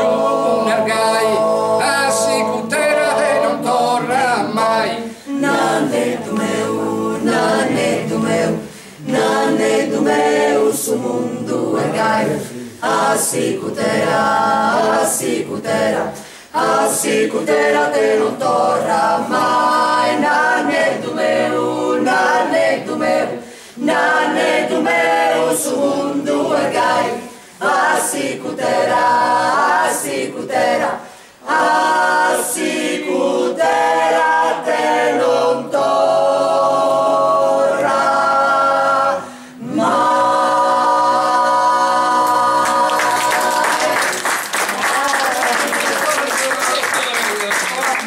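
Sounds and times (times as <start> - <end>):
mixed choir singing a cappella: 0.0 - 44.7
audience applause: 42.6 - 48.0.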